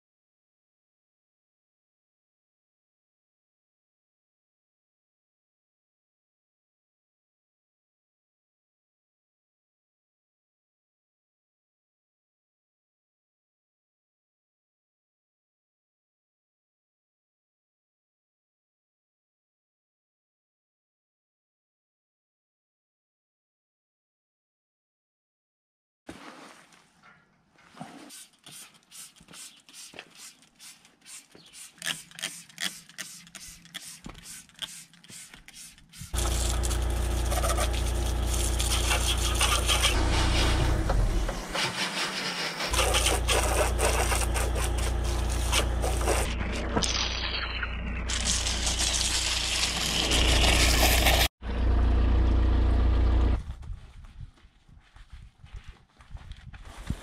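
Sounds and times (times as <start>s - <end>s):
spray bottle squirting: 28.0s - 40.6s, 42.6s - 47.4s, 48.1s - 51.3s
pressure washer jet hissing: 28.5s - 46.3s
low motor hum: 36.2s - 41.8s, 42.5s - 54.3s.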